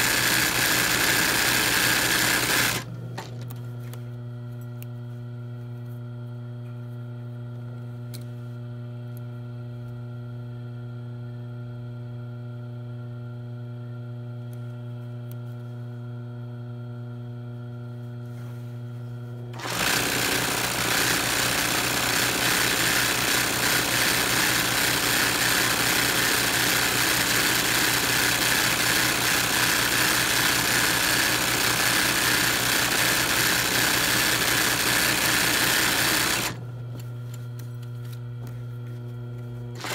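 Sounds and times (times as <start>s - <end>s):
sewing machine stitching fast: 0.0s - 2.9s, 19.6s - 36.6s.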